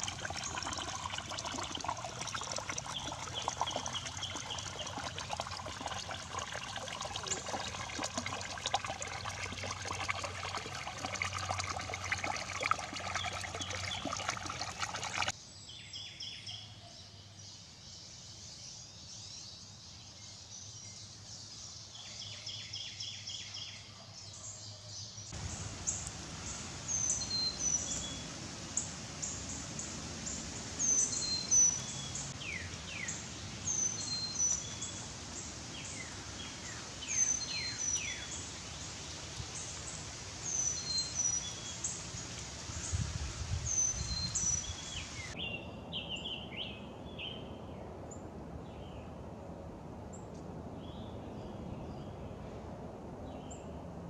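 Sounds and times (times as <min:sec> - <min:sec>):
woodland ambience: 0:00.0 - 0:15.8, 0:20.6 - 0:45.5
steady hiss: 0:25.4 - 0:45.4.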